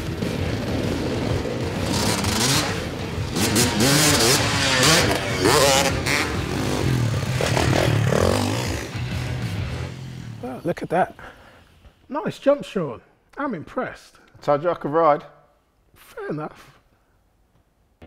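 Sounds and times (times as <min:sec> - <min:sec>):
motocross bike engine revving: 0:00.0 - 0:10.6.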